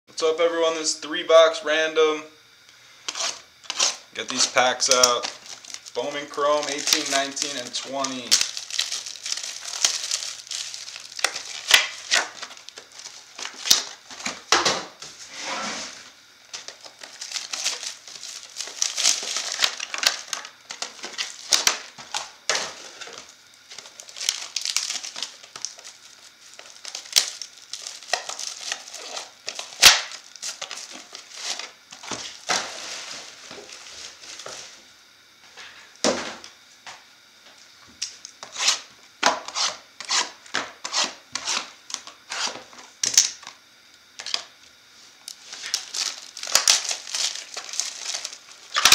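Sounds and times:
plastic wrapping crinkling: 0:03.1 - 0:14.4, 0:16.5 - 0:34.7, 0:45.3 - 0:48.9.

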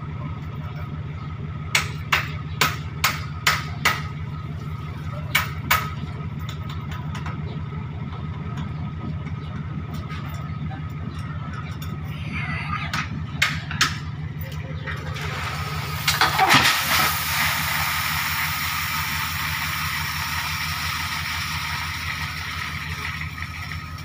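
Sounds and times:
diesel lorry engine running: 0:00.0 - 0:24.0.

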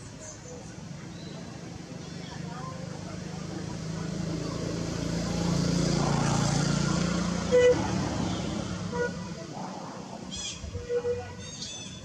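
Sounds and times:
vehicle engine passing: 0:02.7 - 0:11.5
horn toot: 0:07.4 - 0:09.4.

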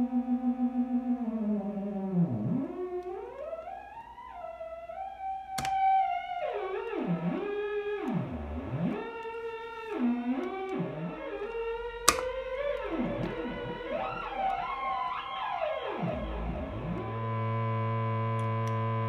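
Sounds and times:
sharp click: 0:05.6 - 0:05.8, 0:11.5 - 0:12.4.

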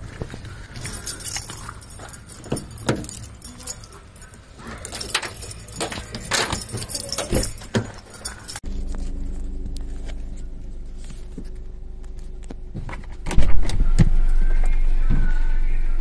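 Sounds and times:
keys jangling on a keyring: 0:00.8 - 0:08.6
key worked into car door lock: 0:01.4 - 0:04.2, 0:04.9 - 0:08.6.

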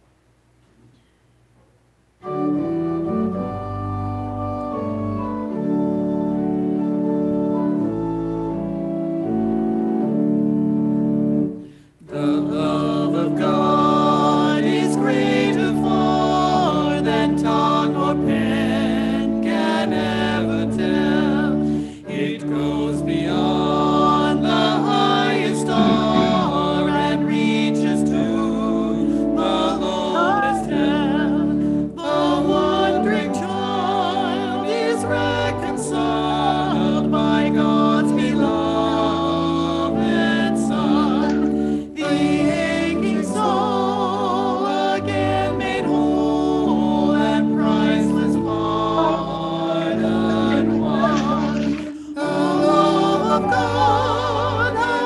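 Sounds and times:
church organ chords: 0:02.2 - 0:55.0
voices singing a hymn: 0:02.2 - 0:55.0.

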